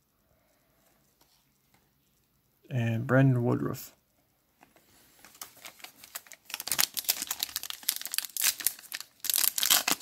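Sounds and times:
foil wrapper crinkling: 5.2s - 10.0s.

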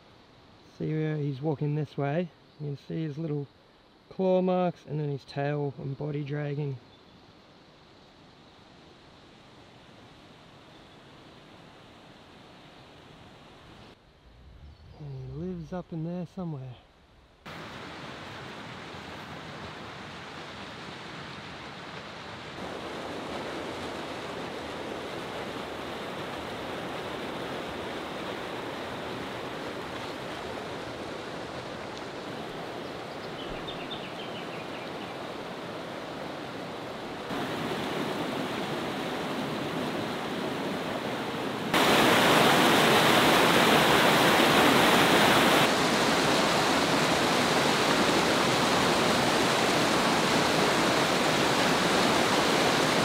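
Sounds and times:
water rushing over rocks: 17.5s - 34.1s, 35.2s - 53.0s.

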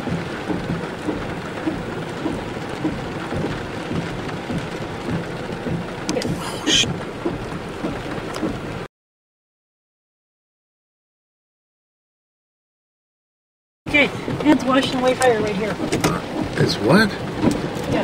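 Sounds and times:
low thumps: 0.0s - 8.9s
heavy rain hiss: 0.1s - 8.9s, 13.9s - 18.0s.

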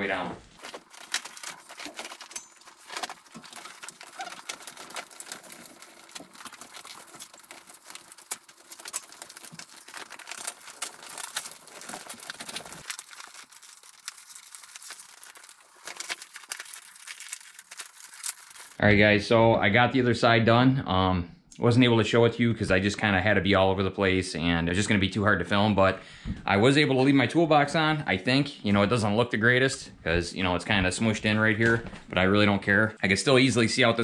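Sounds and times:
vinyl curtain rustling and crinkling: 0.0s - 18.8s.

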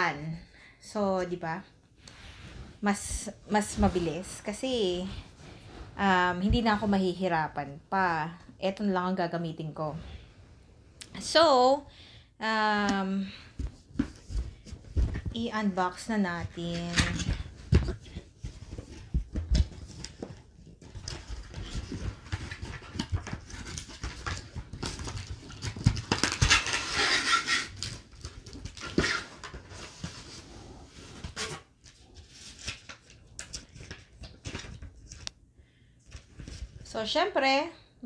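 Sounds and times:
cardboard rustling and scraping: 13.6s - 35.2s.

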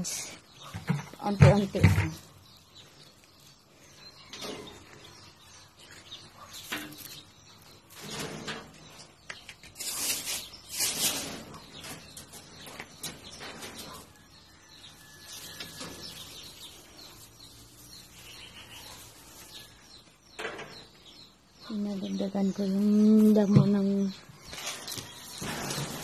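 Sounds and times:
grass rustling: 14.9s - 20.2s.

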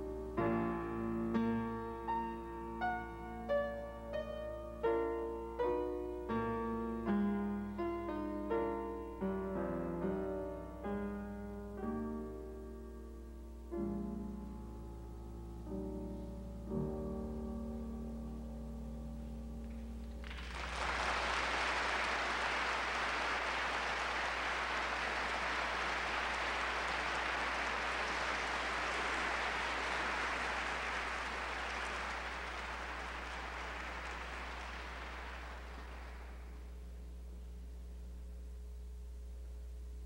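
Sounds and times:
audience applause: 20.2s - 36.7s.

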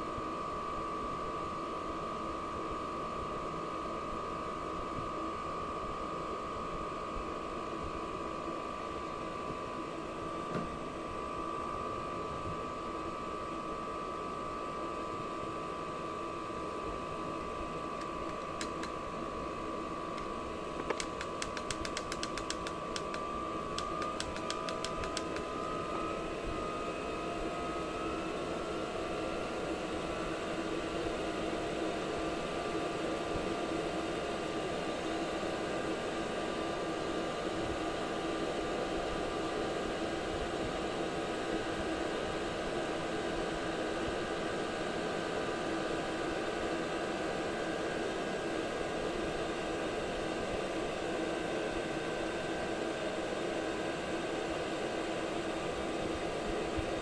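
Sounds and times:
blower fan whine: 0.0s - 57.0s
sharp clicks: 18.0s - 19.0s, 20.2s - 25.5s.

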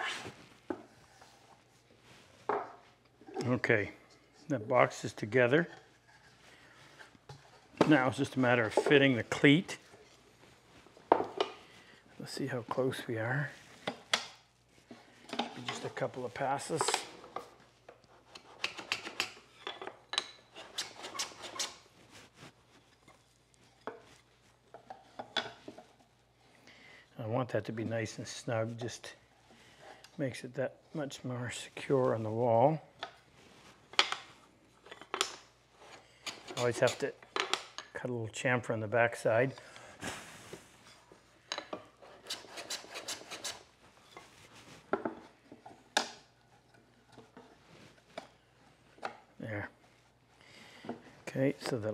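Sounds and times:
hand plane scraping wood: 20.6s - 21.8s, 42.0s - 43.6s.

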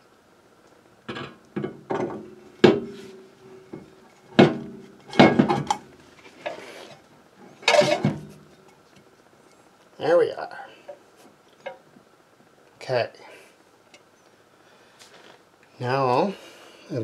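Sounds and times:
metal clunks ringing: 1.1s - 6.0s, 7.6s - 8.4s
metal scrape: 2.0s - 8.7s.

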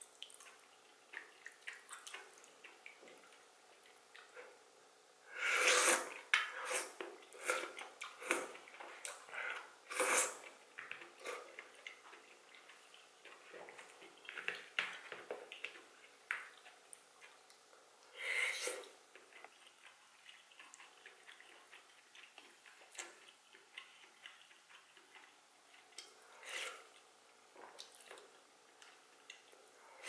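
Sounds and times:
wet chewing clicks: 0.2s - 4.4s, 7.5s - 17.7s, 19.1s - 26.2s.

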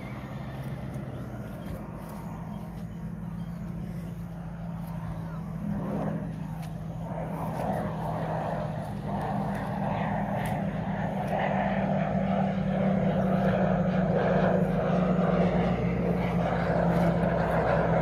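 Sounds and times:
aircraft engine drone: 0.0s - 18.0s.

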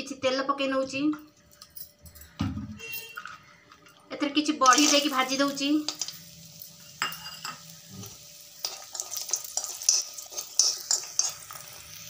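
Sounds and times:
dumplings sizzling in oil: 3.5s - 12.0s
spoon scraping metal pan: 8.6s - 11.8s.

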